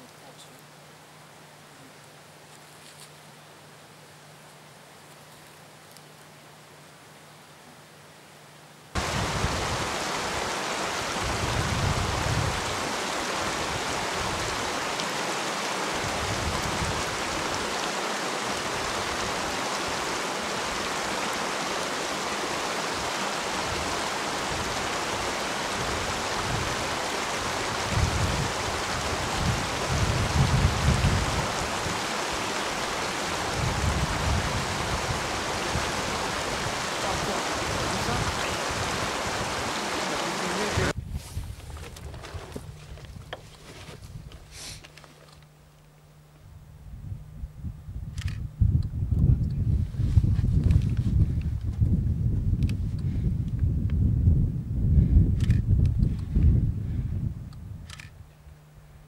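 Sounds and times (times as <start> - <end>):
wind buffeting microphone: 9.0 - 15.0, 15.9 - 17.8, 22.9 - 43.4, 46.8 - 58.2.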